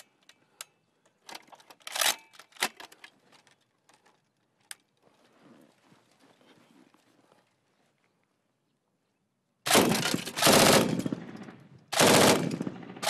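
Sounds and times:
machine gun metal clicks and clacks: 0:00.0 - 0:05.0, 0:09.7 - 0:13.0.

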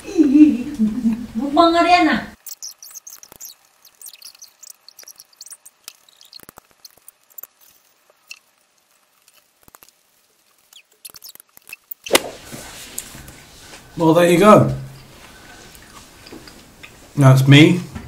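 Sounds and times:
soft chewing: 0:15.0 - 0:17.1.

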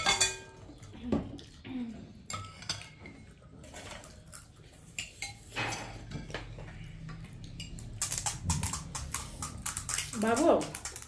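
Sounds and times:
metal spoons clinking on bowls: 0:00.0 - 0:00.9, 0:02.2 - 0:04.1, 0:04.9 - 0:06.5.

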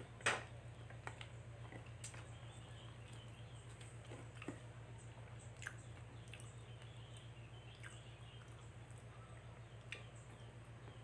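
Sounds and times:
steady low hum: 0:00.0 - 0:11.0
eating clicks and smacks: 0:05.3 - 0:08.8, 0:09.8 - 0:10.2.

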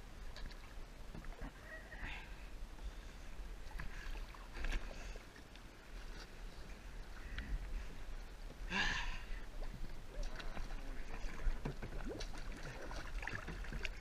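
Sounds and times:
water sloshing and dripping: 0:09.5 - 0:14.0
paddle knocks: 0:11.4 - 0:12.4.

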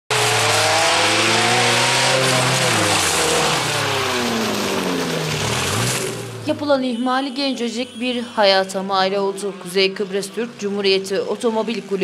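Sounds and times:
engine revving hard: 0:00.1 - 0:06.5.

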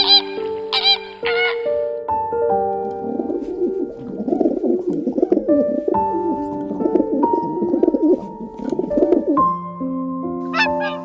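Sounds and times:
soft background music: 0:00.0 - 0:11.0
pigeons cooing: 0:03.0 - 0:09.5.

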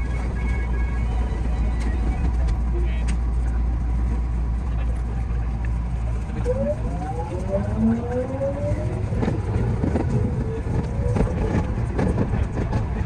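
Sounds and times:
electric train rumble: 0:00.0 - 0:13.0.

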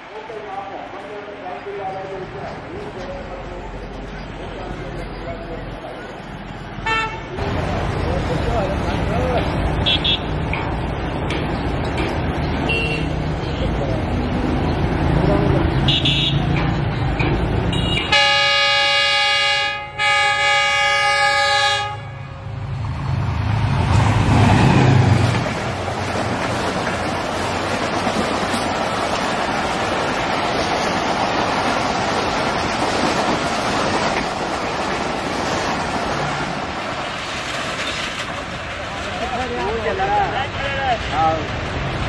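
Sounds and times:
train coaches rushing on rails: 0:00.0 - 0:42.0
locomotive engine rumble: 0:00.3 - 0:19.3, 0:20.0 - 0:42.0
train horn blasts: 0:06.8 - 0:07.3, 0:17.7 - 0:22.6.

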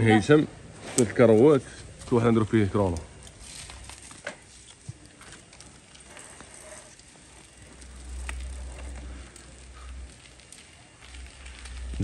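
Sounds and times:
bicycle clicks and knocks: 0:02.8 - 0:12.0
low rumble: 0:07.6 - 0:12.0.

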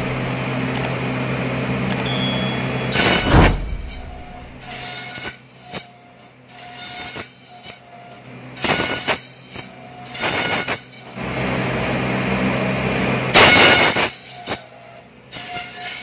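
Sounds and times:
motor humming: 0:00.0 - 0:01.0.

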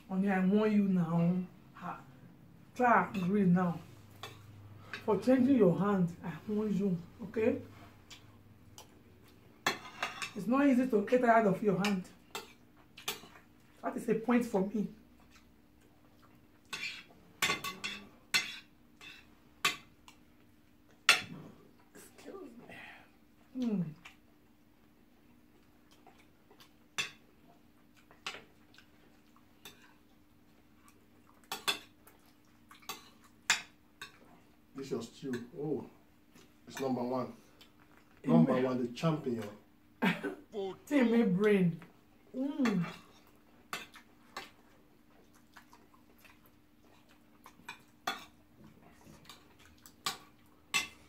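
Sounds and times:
faint steady hum: 0:00.0 - 0:51.0
spoons clinking on ceramic plates: 0:09.6 - 0:10.4.

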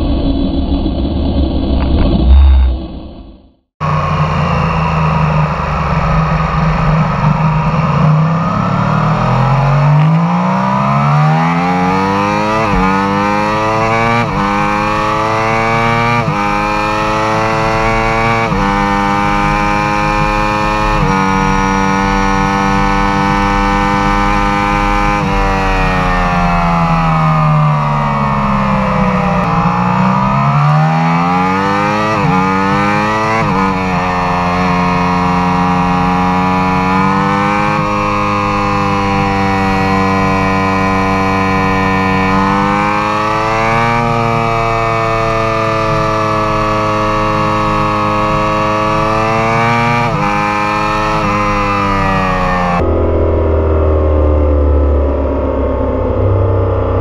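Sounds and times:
wind rush: 0:00.0 - 0:09.6, 0:14.3 - 0:31.2
motorcycle engine accelerating: 0:00.0 - 0:57.0.

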